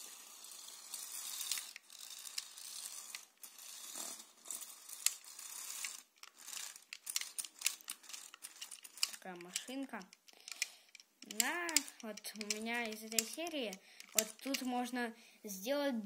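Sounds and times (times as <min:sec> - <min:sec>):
electric motors whirring: 0:00.0 - 0:09.2
plastic tracks clattering: 0:00.0 - 0:14.8
sharp irregular clicks: 0:05.0 - 0:14.9.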